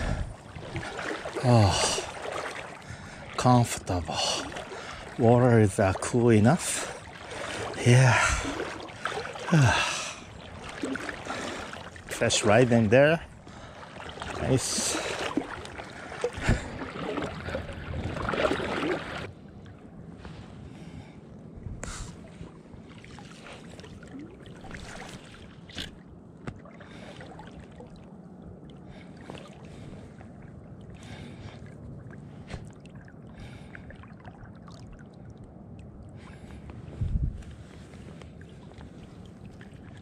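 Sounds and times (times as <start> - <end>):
river water washing: 0.0 - 19.3, 22.2 - 25.8
water splashing and sloshing: 0.0 - 40.0.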